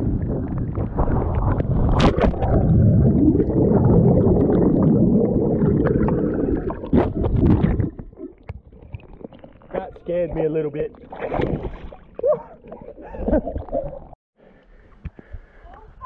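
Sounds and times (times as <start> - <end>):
muffled underwater rumbling and bubbling: 0.0 - 14.2
sharp splash into water: 1.7 - 2.6.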